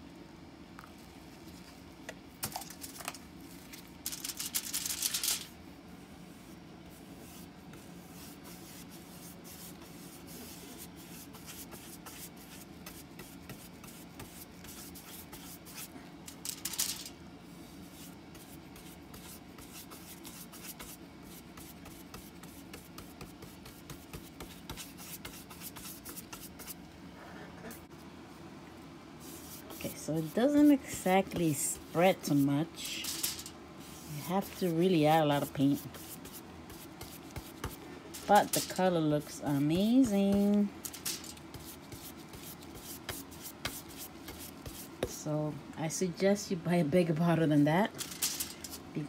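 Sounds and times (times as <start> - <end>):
faint steady hum: 0.0 - 49.0
foam brush scrubbing wood: 29.3 - 32.7
handling rustles: 29.6 - 36.3, 36.9 - 42.3, 47.9 - 48.9.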